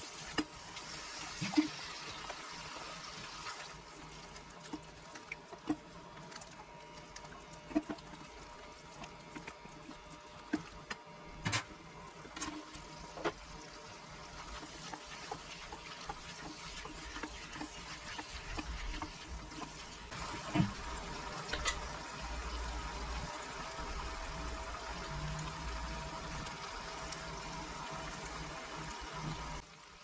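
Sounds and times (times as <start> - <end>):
sauce sizzling and bubbling in pan: 0.0 - 11.0, 11.9 - 30.0
spatula knocking and scraping pan: 14.4 - 20.8.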